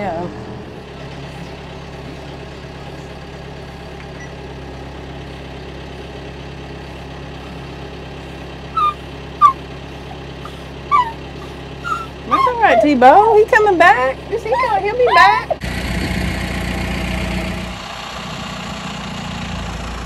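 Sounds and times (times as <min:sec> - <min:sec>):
tractor engine idling: 0:00.0 - 0:20.0
dog whining: 0:08.7 - 0:13.2, 0:14.4 - 0:15.6.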